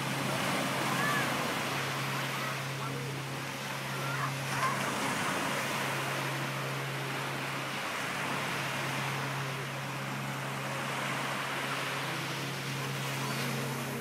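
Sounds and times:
low drone: 0.0 - 14.0
small waves breaking on beach: 0.0 - 14.0.

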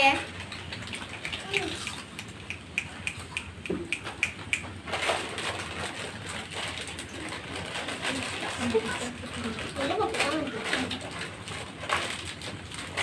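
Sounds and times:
crunching crackles: 0.3 - 13.0
snack packets crinkling: 4.8 - 13.0.

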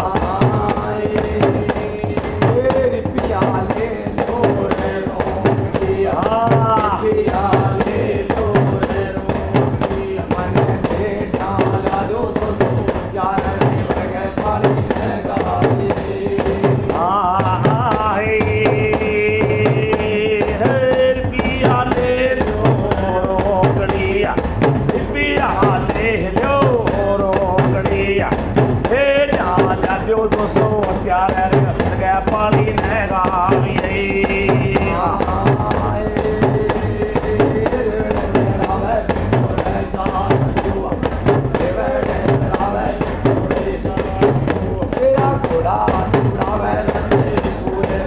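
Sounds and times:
frame drum: 0.0 - 48.0
men singing devotional song: 0.0 - 48.0.

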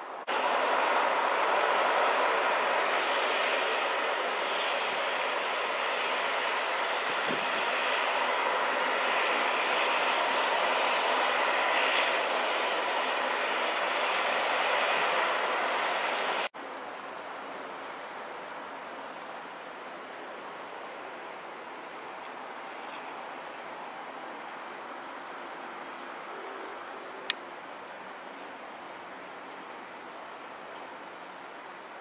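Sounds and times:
turboprop engines running: 0.0 - 16.5.

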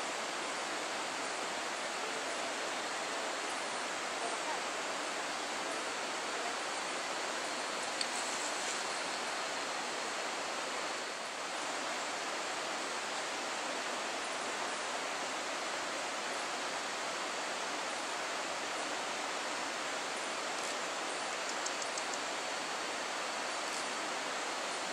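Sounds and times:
forest ambience hiss: 0.0 - 24.9
faint click: 7.9 - 8.8, 21.4 - 22.3.

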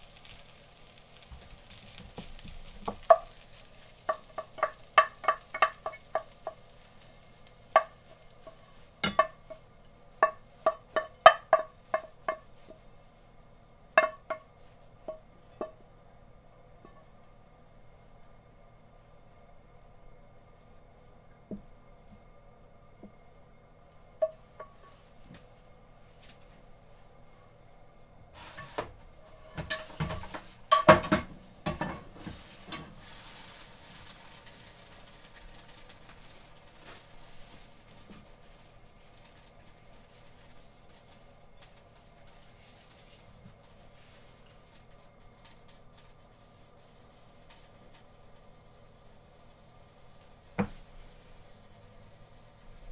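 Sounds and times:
faint sizzle: 0.0 - 52.9
wooden spatula knocking frying pan: 1.9 - 12.8, 14.0 - 15.8, 24.2 - 24.8, 29.5 - 32.9.

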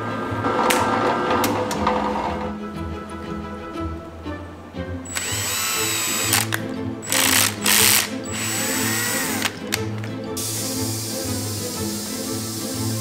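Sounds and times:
background music: 0.0 - 13.0
cordless drill whining: 5.1 - 10.0.

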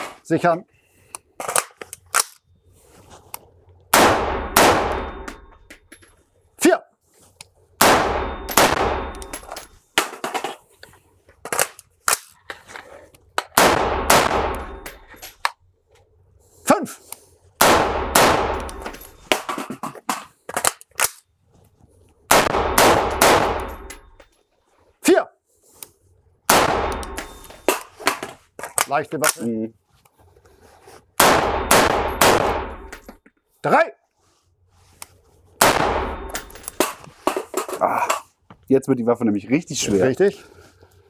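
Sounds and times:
rifle gunfire indoors: 4.0 - 5.2, 13.6 - 14.8, 22.3 - 23.8, 31.2 - 32.9.

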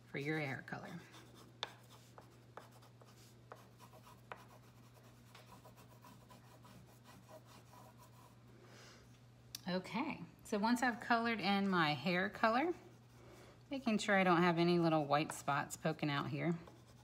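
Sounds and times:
pastel scratching on paper: 0.3 - 8.4, 16.7 - 17.0.

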